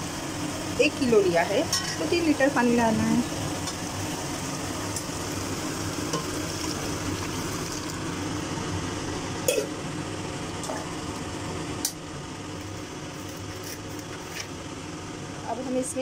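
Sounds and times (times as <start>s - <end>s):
food sizzling in a metal pot: 0.0s - 11.1s
water being added: 5.2s - 8.3s.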